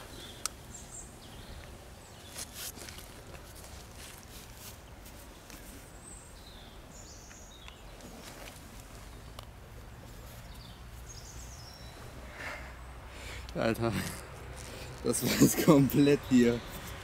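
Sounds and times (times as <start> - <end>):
low rumble of wind: 0.0 - 17.0.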